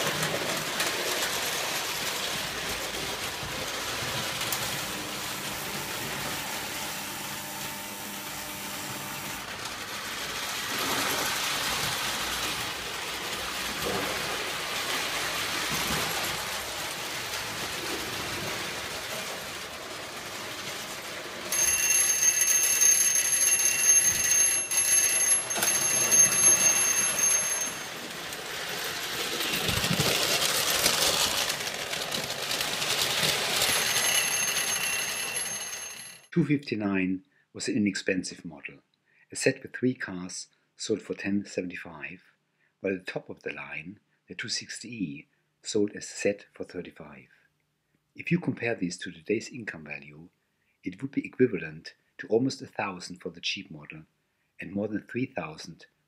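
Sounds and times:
toy trains rattling on metal track: 0:00.0 - 0:36.3
electric bell ringing: 0:21.5 - 0:28.7, 0:33.5 - 0:36.3.

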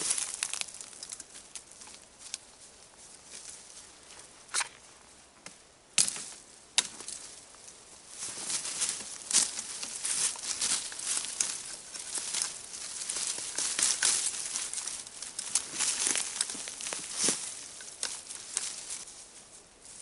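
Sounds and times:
sapling cracking: 0:00.0 - 0:01.8, 0:08.4 - 0:19.1
twigs and leaves rustling: 0:00.0 - 0:20.0.

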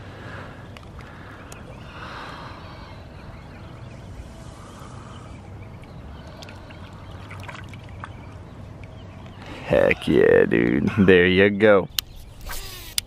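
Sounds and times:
water trickling and sloshing: 0:05.7 - 0:09.1.

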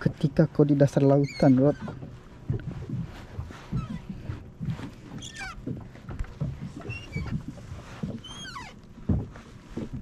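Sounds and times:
knocks and thumps against kayak hull: 0:00.0 - 0:10.0
short squeaks sliding down: 0:05.2 - 0:05.6, 0:06.8 - 0:07.4, 0:08.2 - 0:08.8.

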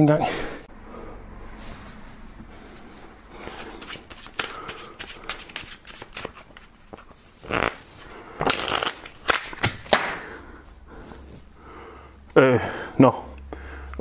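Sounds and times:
cards riffling: 0:03.5 - 0:10.2
playing cards snapping and flicking: 0:03.8 - 0:07.8, 0:08.4 - 0:10.2.

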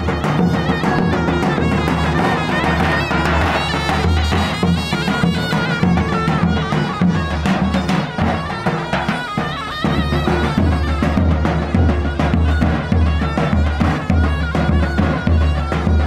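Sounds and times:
double-reed pipe melody: 0:00.0 - 0:16.0.

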